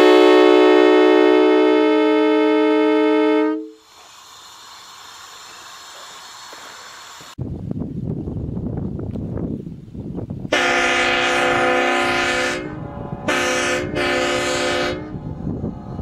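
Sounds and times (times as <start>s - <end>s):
air horn blasts: 0.0s - 3.8s, 10.5s - 15.4s.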